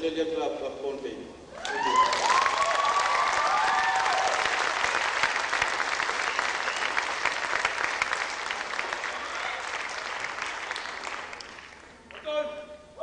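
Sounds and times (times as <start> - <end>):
cheering whoops: 1.6 - 4.7, 9.1 - 9.8
audience applauding: 1.6 - 12.3.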